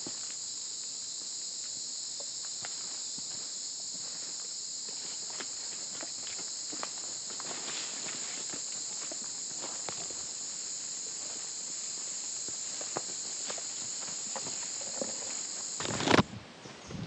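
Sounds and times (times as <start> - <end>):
high-pitched insect chorus: 0.0 - 17.0
footsteps on leaf litter: 4.9 - 14.8.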